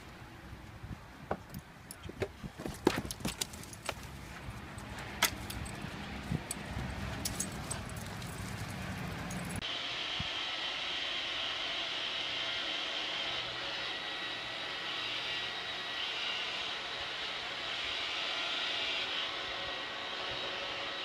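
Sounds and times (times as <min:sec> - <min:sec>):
dog collar tags jingling: 0:05.2 - 0:09.6.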